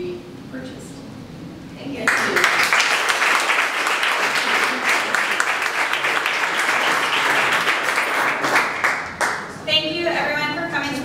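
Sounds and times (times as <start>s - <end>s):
audience applauding: 2.1s - 9.6s.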